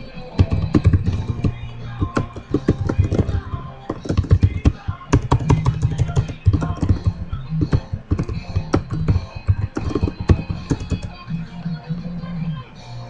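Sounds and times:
background music with low notes: 0.0 - 13.0
computer keyboard typing: 0.4 - 11.3.

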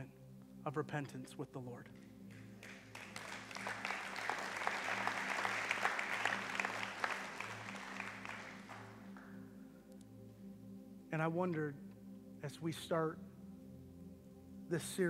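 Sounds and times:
congregation applauding: 2.0 - 9.4.

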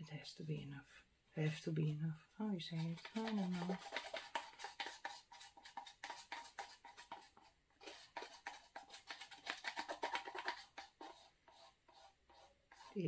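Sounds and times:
paper cup clicks and scrapes: 2.7 - 13.0.

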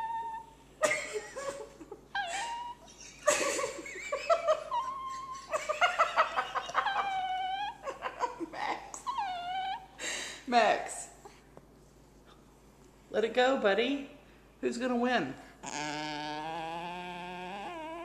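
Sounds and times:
small dog whining and squealing: 0.0 - 0.6, 2.2 - 3.2, 4.6 - 5.6, 6.6 - 8.0, 9.0 - 10.0, 15.6 - 18.0.

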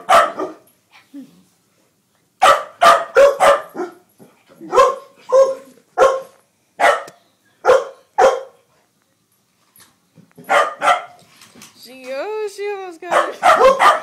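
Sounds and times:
dog barking: 0.0 - 0.7, 2.4 - 4.1, 4.7 - 8.6, 10.4 - 11.2, 13.1 - 14.0.

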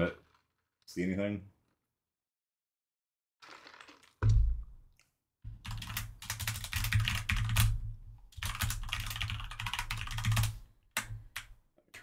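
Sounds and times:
rapid keyboard typing: 5.6 - 11.6.

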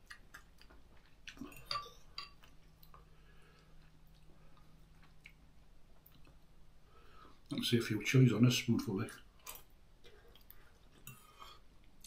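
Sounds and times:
faint low hum: 0.0 - 12.0
fork clinking against bowl: 1.5 - 2.4.

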